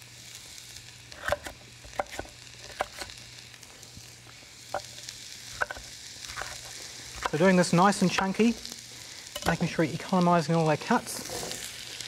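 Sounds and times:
onions sizzling in a pan: 0:00.0 - 0:12.0
knife chopping on wooden board: 0:01.2 - 0:03.1.

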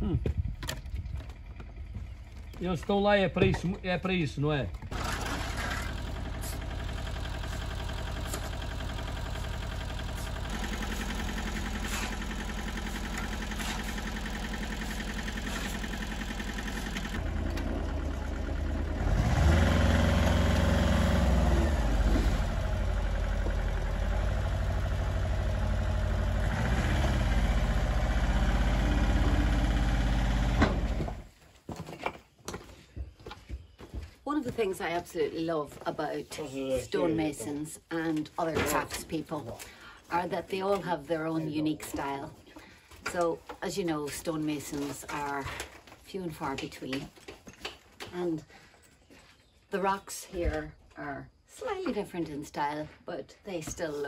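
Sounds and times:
dumper engine running: 0:04.7 - 0:31.3.

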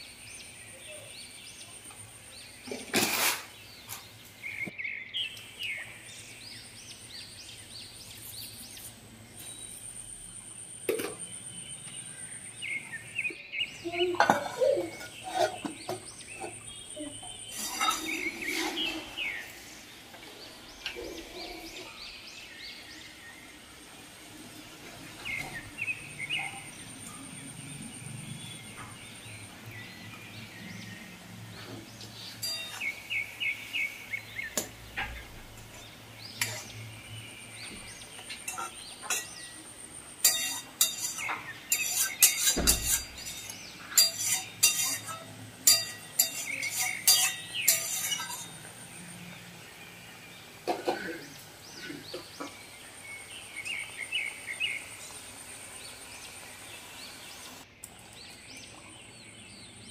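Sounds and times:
birds chirping: 0:00.0 - 0:59.9
oil sizzling in a wok: 0:14.1 - 0:27.1, 0:32.3 - 0:37.1, 0:37.8 - 0:58.2.

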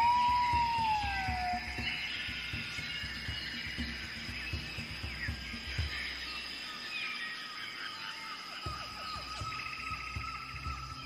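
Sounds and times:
low pulsing beat: 0:00.0 - 0:06.4, 0:08.7 - 0:11.0
bird chirps and calls: 0:00.0 - 0:11.0
high-pitched insect drone: 0:00.0 - 0:11.0.

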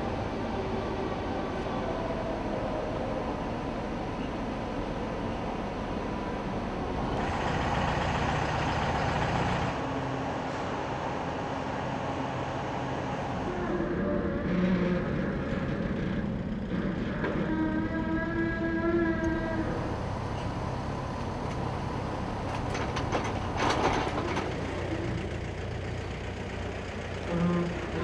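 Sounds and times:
engine noise: 0:00.0 - 0:28.0.

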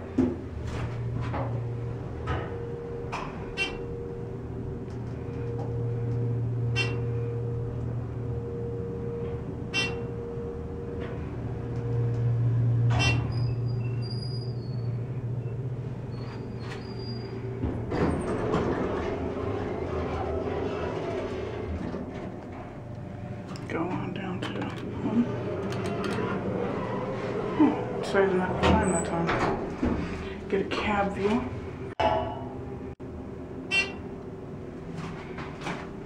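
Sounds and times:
elevator doors sliding open: 0:00.0 - 0:31.9
elevator pump humming: 0:00.0 - 0:36.0.

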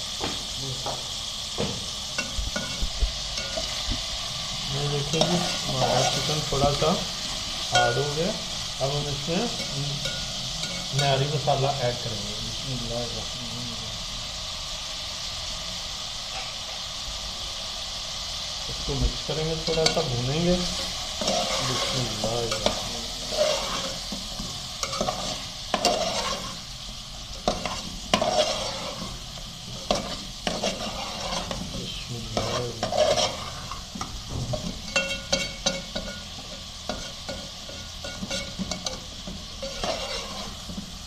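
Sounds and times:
chicken sizzling in oil: 0:00.0 - 0:41.0
spatula scraping metal pot: 0:19.7 - 0:26.7, 0:27.4 - 0:40.9.

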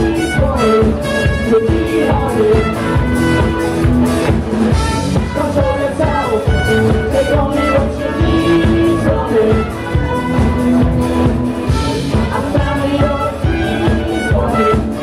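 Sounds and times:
bass guitar: 0:00.0 - 0:15.0
drum beat: 0:00.0 - 0:15.0
electric guitars: 0:00.0 - 0:15.0
trumpet: 0:00.0 - 0:15.0.

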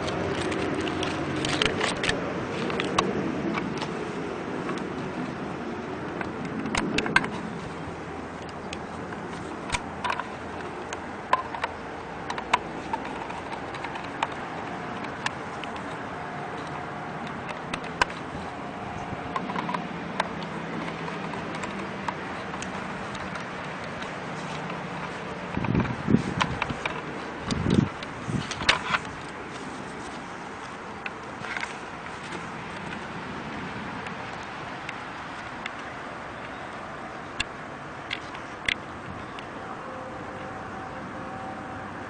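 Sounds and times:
outdoor background noise: 0:00.0 - 0:42.0
light clicks and taps: 0:08.4 - 0:33.1.

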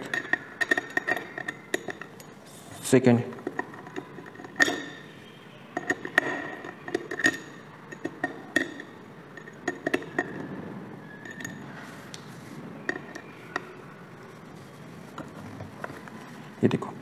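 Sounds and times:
screwdriver metallic clicks and clinks: 0:03.4 - 0:05.2, 0:05.8 - 0:10.4.

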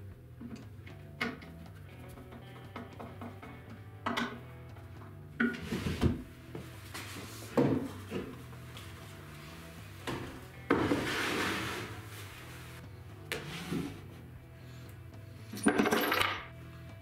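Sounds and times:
wooden knocks: 0:01.2 - 0:04.4
wood scraping on shelf: 0:05.4 - 0:08.4, 0:09.5 - 0:14.2.

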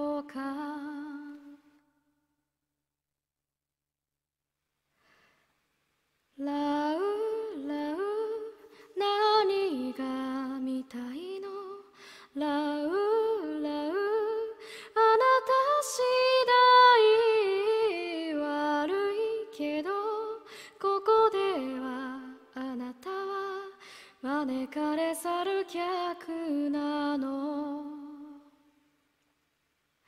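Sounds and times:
woman singing a cappella: 0:00.0 - 0:01.8, 0:06.3 - 0:28.7
singer breathing: 0:04.9 - 0:05.6, 0:11.9 - 0:12.4, 0:14.6 - 0:15.0, 0:20.4 - 0:20.8, 0:23.8 - 0:24.2.

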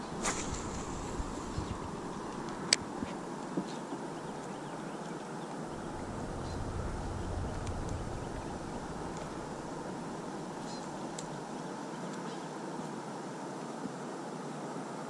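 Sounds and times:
wind blowing across microphone: 0:00.0 - 0:11.6.

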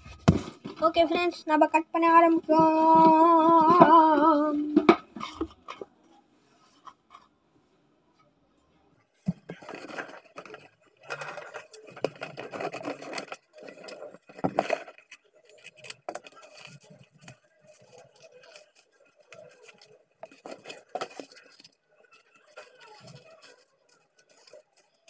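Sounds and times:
cardboard rustling and scraping: 0:00.0 - 0:01.3, 0:09.3 - 0:24.9.

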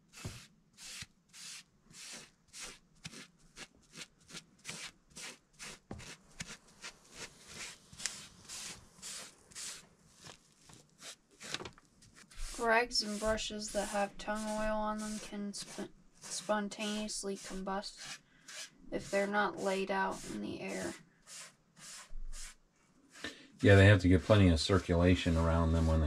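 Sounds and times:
foam brush rubbing on wood: 0:00.0 - 0:26.0.

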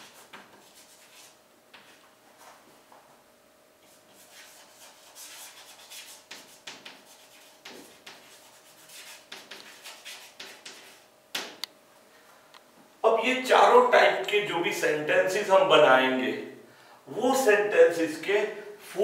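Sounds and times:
chalk scratching on blackboard: 0:00.0 - 0:02.0, 0:03.8 - 0:11.1
chalk tapping on board: 0:04.1 - 0:11.6.

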